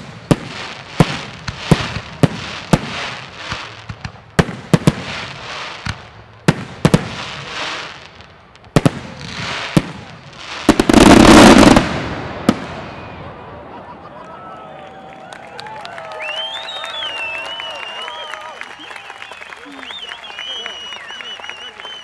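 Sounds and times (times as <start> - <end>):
fizz and crackle of fireworks: 0.0 - 14.4, 15.0 - 22.0.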